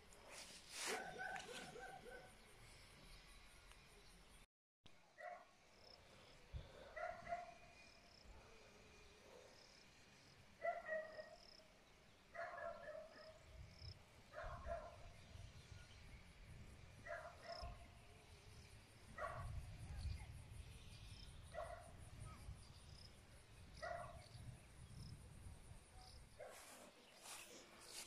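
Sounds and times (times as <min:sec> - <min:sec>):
dog barking faintly: 0:00.8 - 0:02.4.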